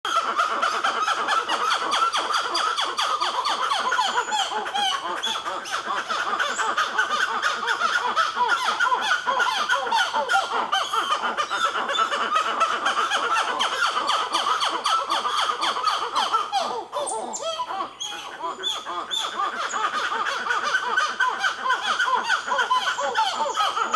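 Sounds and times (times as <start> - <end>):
monkeys calling: 0.1 - 23.9.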